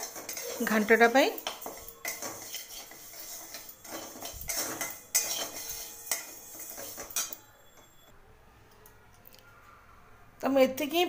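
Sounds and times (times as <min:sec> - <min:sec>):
lentils rustling in pan: 0:00.0 - 0:07.3
metal spatula scraping metal pan: 0:00.0 - 0:07.4.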